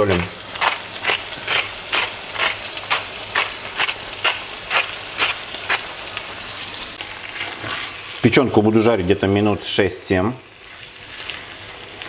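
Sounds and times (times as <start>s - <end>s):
salt mill grinding: 0.0s - 5.9s
liver and onions sizzling: 0.0s - 12.0s.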